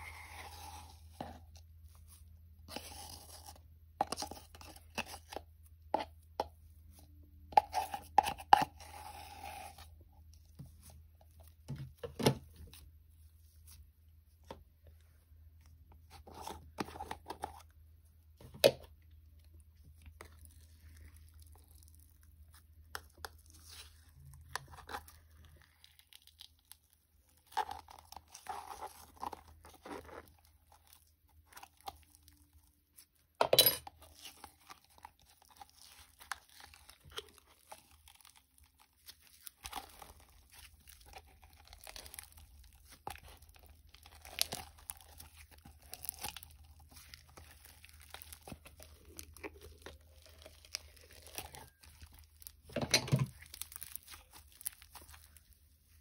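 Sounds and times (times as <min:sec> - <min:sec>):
slime crackling by hand: 0:34.0 - 0:52.7, 0:53.3 - 0:56.0.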